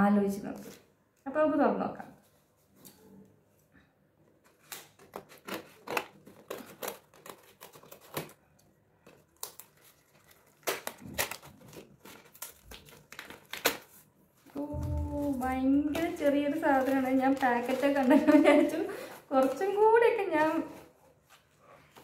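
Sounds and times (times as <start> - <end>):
cardboard box and paper crinkling: 4.4 - 22.0.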